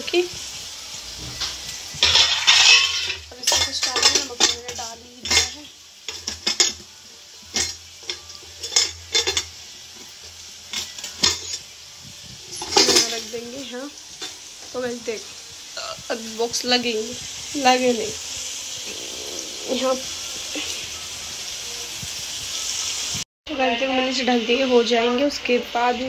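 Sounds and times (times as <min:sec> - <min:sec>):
spoon clinking on steel cups: 0:02.0 - 0:06.8, 0:07.5 - 0:09.6
steel lid clattering: 0:02.0 - 0:06.8, 0:07.5 - 0:09.5, 0:10.7 - 0:11.6, 0:12.6 - 0:13.3.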